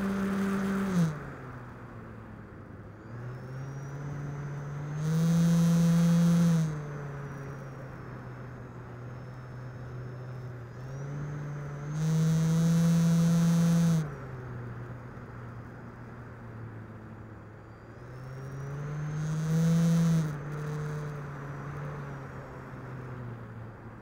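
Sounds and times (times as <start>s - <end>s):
model plane motor and propeller: 0.0s - 1.3s, 2.5s - 15.8s, 17.4s - 23.2s
faint high whine: 2.8s - 15.7s, 16.8s - 22.5s.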